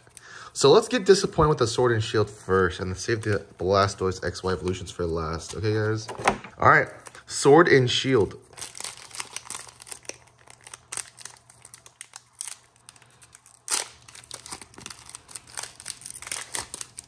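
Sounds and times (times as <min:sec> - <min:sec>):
foil wrapper crinkling: 0:08.1 - 0:17.0.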